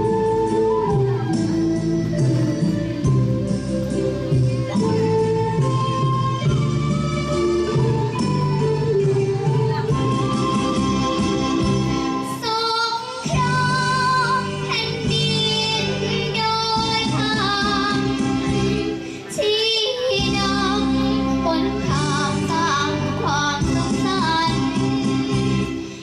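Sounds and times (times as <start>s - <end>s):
girl singing into a microphone: 12.2s - 25.7s.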